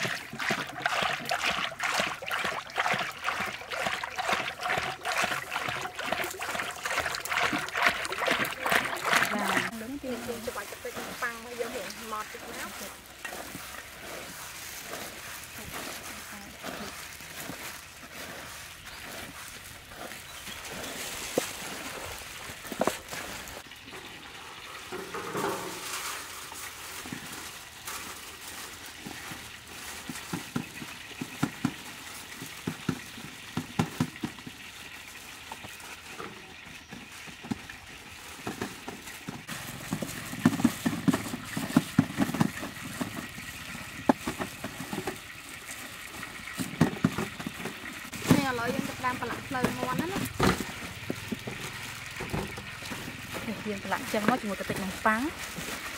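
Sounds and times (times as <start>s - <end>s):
hands rustling crumb coating: 4.6s - 23.7s, 25.6s - 33.4s, 34.9s - 55.9s.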